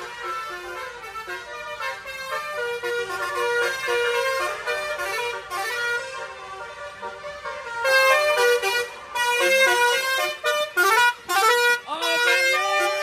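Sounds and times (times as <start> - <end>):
truck air horns playing melody: 0.0 - 13.0.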